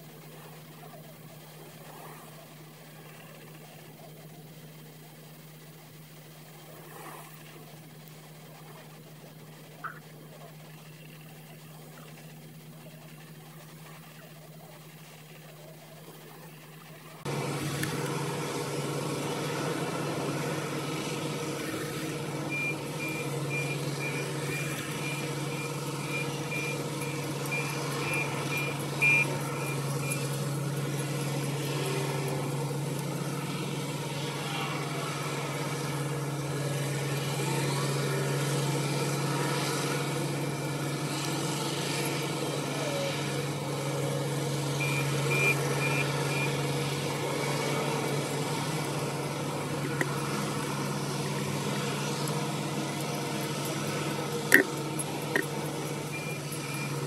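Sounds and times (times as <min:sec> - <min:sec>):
diesel engines running: 0:00.0 - 0:57.0
reversing alarm beeping: 0:22.4 - 0:30.4, 0:44.8 - 0:46.7, 0:54.5 - 0:57.0.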